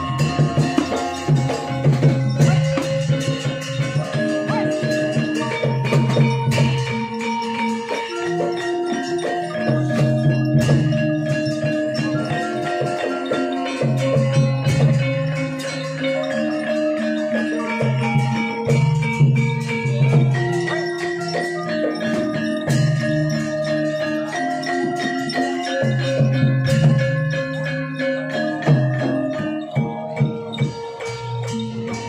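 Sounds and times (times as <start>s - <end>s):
gamelan music: 0.0s - 32.0s.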